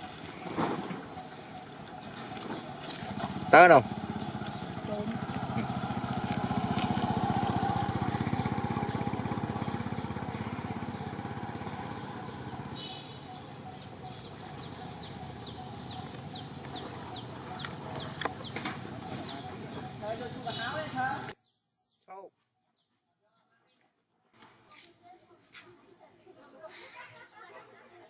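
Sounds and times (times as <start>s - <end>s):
motorcycle engine running: 0.0s - 21.4s
bird chirping: 0.0s - 24.2s.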